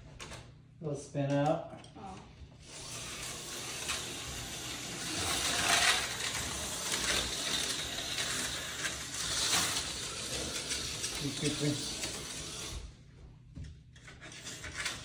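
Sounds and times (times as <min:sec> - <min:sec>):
slot car motors buzzing: 0:02.6 - 0:12.9.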